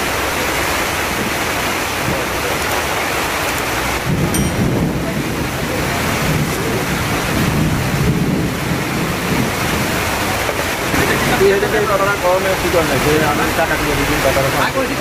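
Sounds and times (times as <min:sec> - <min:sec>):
heavy rain on a wet street: 0:00.0 - 0:15.0
thunder rumbling: 0:04.0 - 0:10.0.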